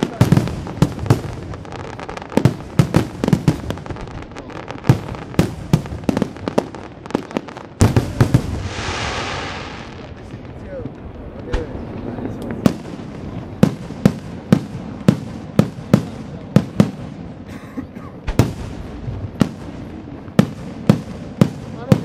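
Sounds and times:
firework hiss: 0.0 - 17.4.

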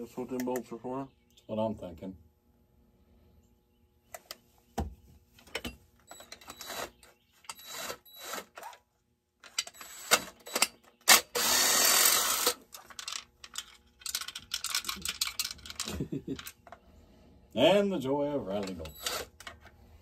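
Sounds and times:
cordless drill running: 6.1 - 8.7, 9.8 - 12.6, 18.8 - 19.4.

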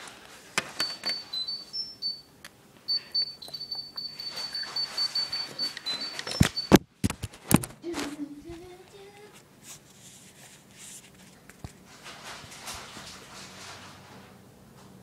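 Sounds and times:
faint rising hum from voice: 7.8 - 9.4.

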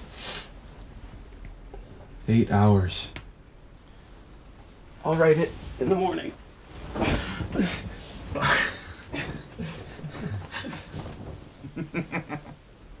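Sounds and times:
men breathing and exhaling: 6.7 - 11.8
men chuckling: 7.0 - 12.6.

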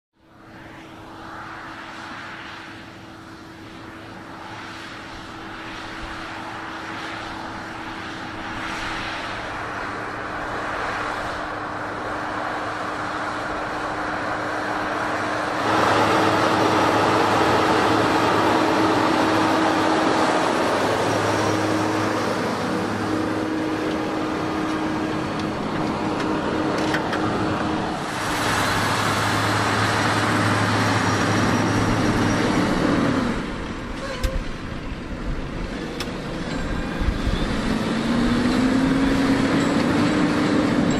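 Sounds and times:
tractor engine under load: 11.4 - 40.9.

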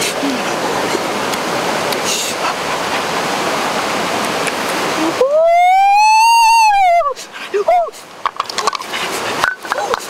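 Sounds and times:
waterfall rushing: 0.0 - 10.0
man crying out: 5.0 - 8.0.

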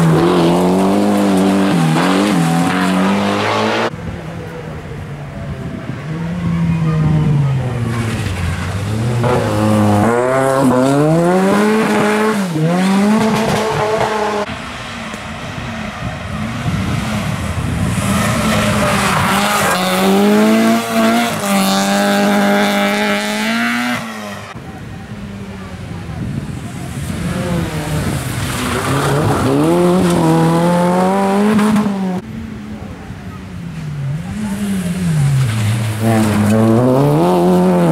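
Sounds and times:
second rally car at high revs: 0.0 - 3.9, 6.7 - 14.5, 16.2 - 24.6, 26.5 - 32.2, 34.1 - 37.9
rally car engine revving: 0.0 - 4.0, 5.9 - 24.6, 26.4 - 32.2, 34.0 - 37.9.

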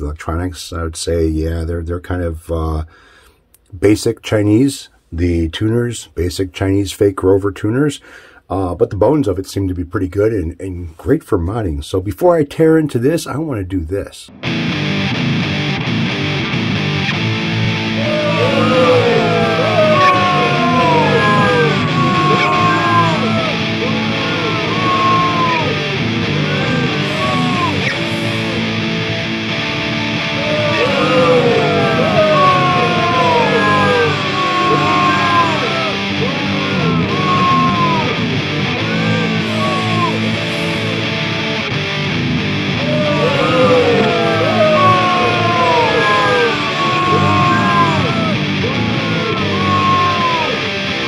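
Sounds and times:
distorted electric guitar lead: 14.3 - 51.0.

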